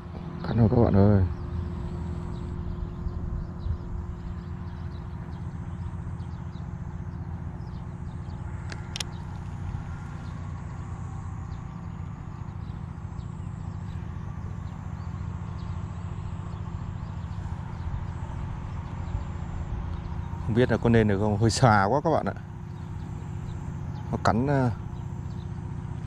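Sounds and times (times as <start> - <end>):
faint ticks: 8.2 - 10.4
sharp click: 8.6 - 9.4.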